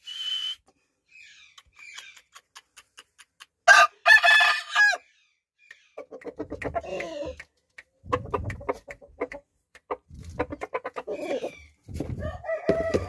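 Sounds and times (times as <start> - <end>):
rooster clucking: 5.9 - 13.0.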